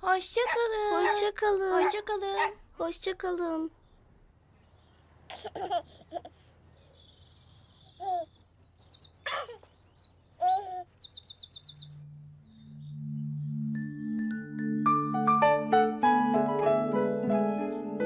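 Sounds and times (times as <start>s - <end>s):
baby giggling and cooing: 5.3s - 6.4s, 8.0s - 8.3s, 10.4s - 10.9s
birds chirping and singing: 6.8s - 13.7s
soft low music notes: 11.9s - 18.0s.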